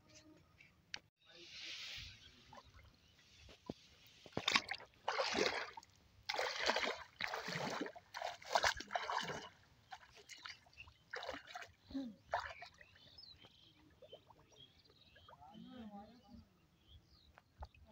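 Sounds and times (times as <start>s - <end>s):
feet splashing in shallow water: 4.3s - 14.4s.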